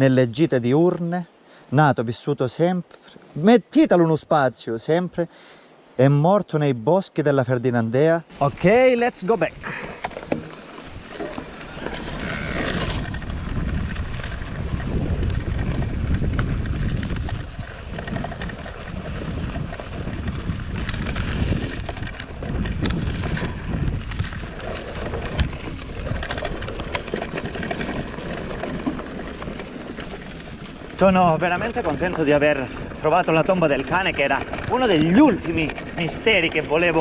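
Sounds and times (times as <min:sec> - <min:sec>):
bike tyres on dirt trail: 0:08.3 - 0:37.0
wind buffeting microphone: 0:08.3 - 0:37.0.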